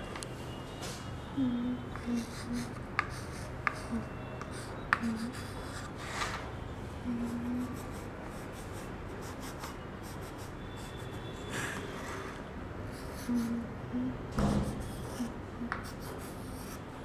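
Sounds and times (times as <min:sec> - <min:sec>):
chalk tapping: 0:02.0 - 0:05.5, 0:14.4 - 0:16.8
chalk writing on slate: 0:02.3 - 0:05.9, 0:14.6 - 0:16.9.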